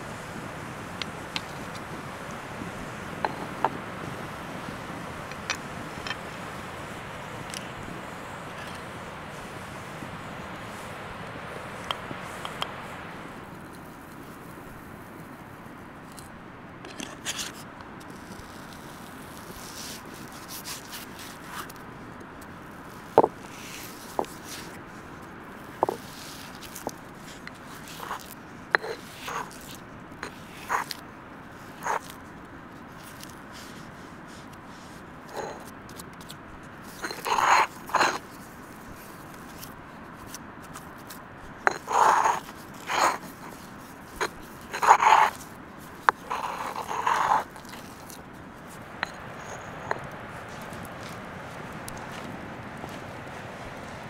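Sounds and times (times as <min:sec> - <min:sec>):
pestle rubbing in stone mortar: 0:03.2 - 0:03.8, 0:25.8 - 0:31.0, 0:31.7 - 0:32.1, 0:35.3 - 0:35.7, 0:36.8 - 0:51.2
stone pestle mashing in mortar: 0:41.7 - 0:45.4, 0:46.0 - 0:50.6.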